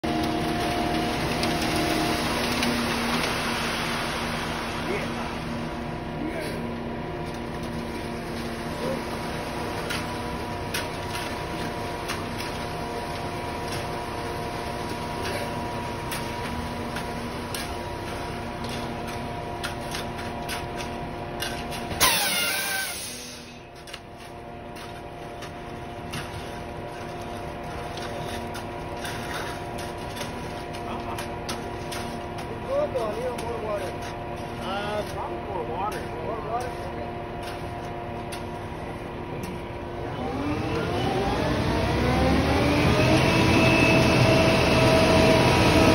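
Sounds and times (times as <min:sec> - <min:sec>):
concrete mixer truck running: 0:00.0 - 0:45.9
concrete pouring down chute: 0:00.1 - 0:06.5, 0:22.0 - 0:23.6
shovels scraping wet concrete: 0:00.1 - 0:41.4.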